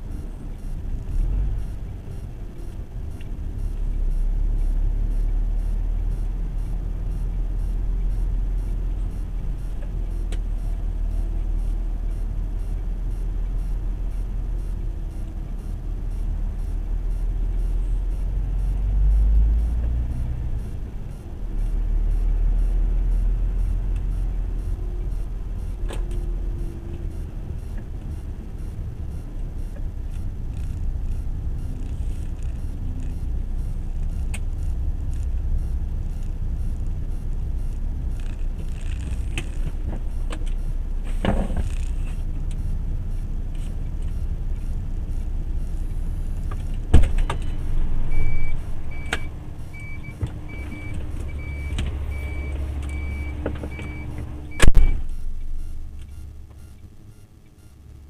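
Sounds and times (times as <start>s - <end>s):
lorry diesel engine rumble: 0.0s - 57.1s
road noise: 0.0s - 58.0s
faint ticks: 29.7s - 40.7s.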